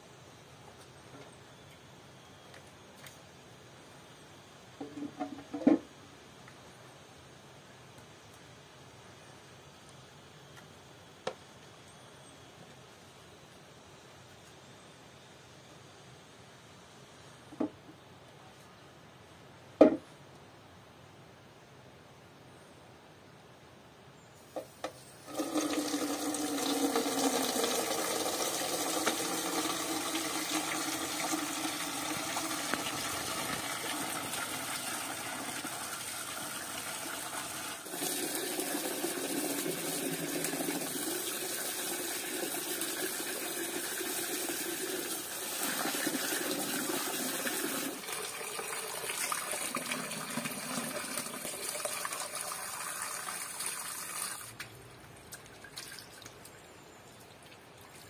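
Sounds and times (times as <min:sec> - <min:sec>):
water pouring into a steel pot: 0:25.2 - 0:54.5.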